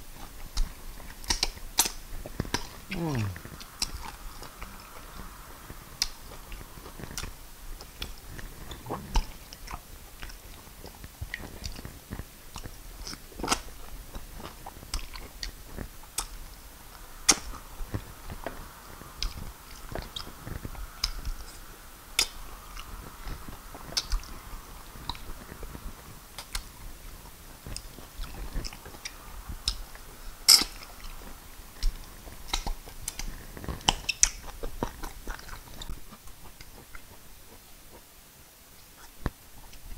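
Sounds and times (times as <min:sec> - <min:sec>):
wet chewing: 0:00.1 - 0:39.9
mouth clicks: 0:00.6 - 0:05.3.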